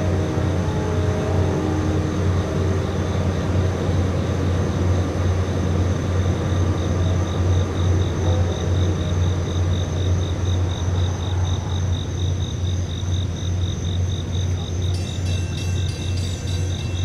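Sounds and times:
constant low hum: 0.0s - 17.0s
crickets chirping: 0.0s - 17.0s
clear ringing tones: 14.8s - 17.0s.

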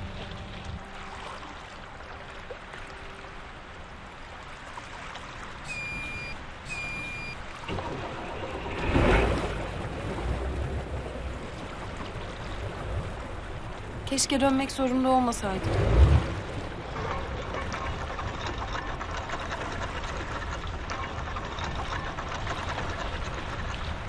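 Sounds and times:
water and wind wash: 0.0s - 24.0s
short electronic beeps: 5.7s - 7.4s
boat engine running: 5.7s - 24.0s.

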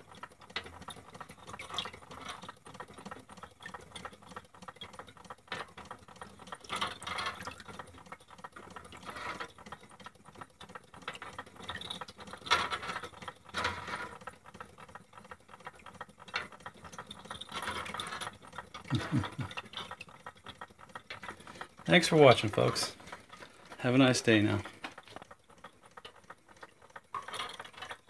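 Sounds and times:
toy bucket chain clattering: 16.2s - 28.0s.

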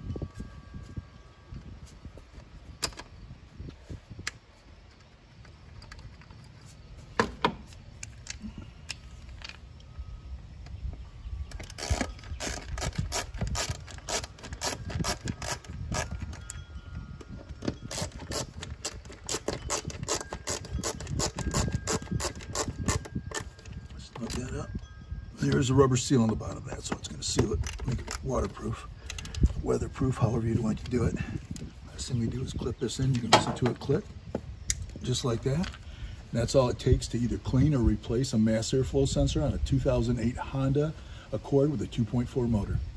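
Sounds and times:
ratchet-like clicking: 17.9s - 23.5s.

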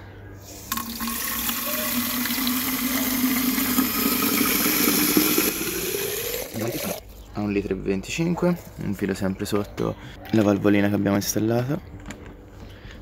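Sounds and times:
tap water filling plastic tank: 0.7s - 7.0s.

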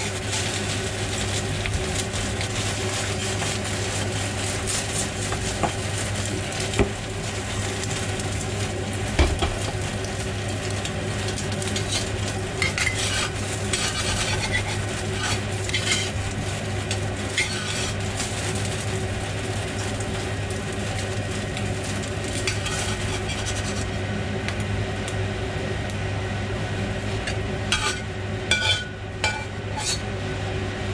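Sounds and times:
egg sizzling in a wok: 0.0s - 26.1s, 26.9s - 30.4s
metal spatula scraping a wok: 11.7s - 16.4s, 17.2s - 18.2s, 22.4s - 23.9s, 27.7s - 30.1s.

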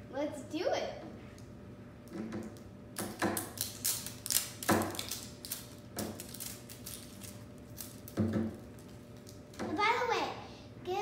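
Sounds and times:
plastic wrapping crackling: 3.3s - 9.6s.

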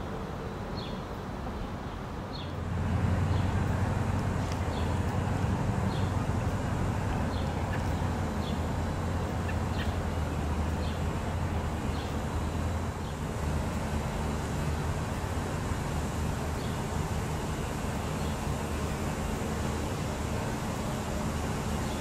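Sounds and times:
low mechanical drone: 2.5s - 22.0s
bird chirping: 5.9s - 11.1s.

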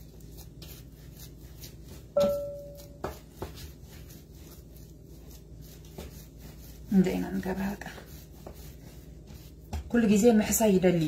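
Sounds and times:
dough kneaded on wooden board: 0.0s - 11.0s
clear ringing tone: 2.2s - 3.0s.

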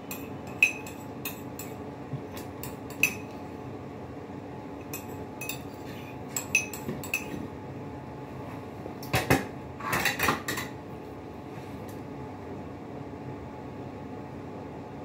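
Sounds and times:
steady low hum: 0.0s - 15.0s
fork clinking against a plate: 0.1s - 1.8s, 2.6s - 3.4s, 4.8s - 7.4s.

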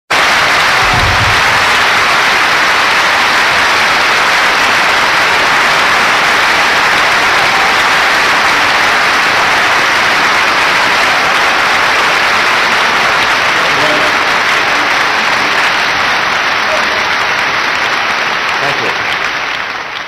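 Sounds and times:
large audience applauding: 0.1s - 20.0s.

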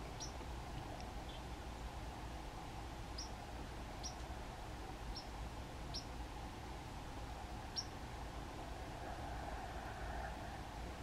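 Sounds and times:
songbirds chip calls: 0.0s - 2.0s, 3.1s - 6.2s, 7.6s - 8.0s.

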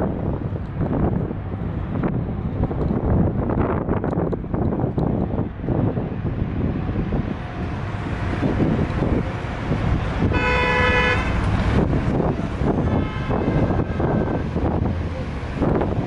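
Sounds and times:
road and engine rumble: 0.0s - 16.0s
wind buffeting microphone: 0.0s - 16.0s
vehicle horn toot: 10.3s - 11.4s, 12.8s - 14.4s.

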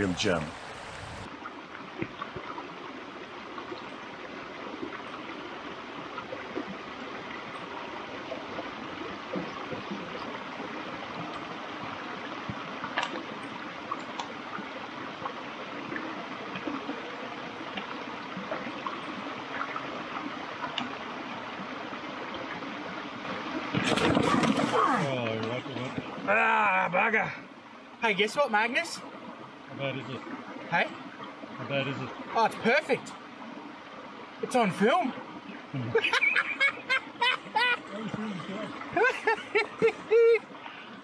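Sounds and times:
small water splashes: 0.0s - 26.8s
creek water babbling over rocks: 0.0s - 41.0s.

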